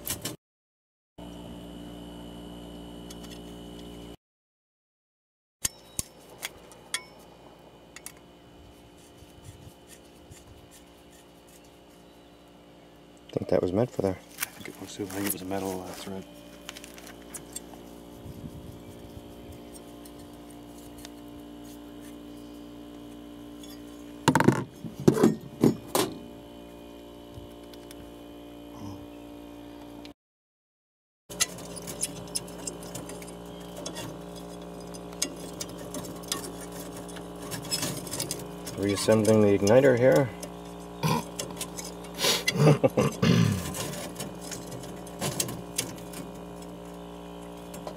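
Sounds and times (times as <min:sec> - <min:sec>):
steady low hum: 0:01.2 - 0:04.2, 0:05.6 - 0:30.2, 0:31.3 - 0:47.9
screwdriver clicking and scraping: 0:31.3 - 0:42.6.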